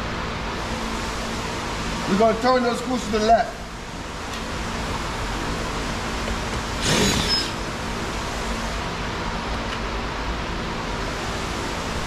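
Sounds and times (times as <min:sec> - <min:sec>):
steady background hum: 0:00.0 - 0:12.0
cordless drill spinning: 0:06.8 - 0:07.6.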